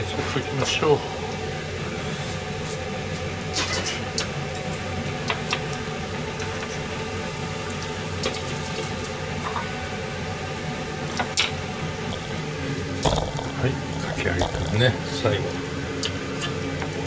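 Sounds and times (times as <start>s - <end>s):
food deep-frying in oil: 0.8s - 17.0s.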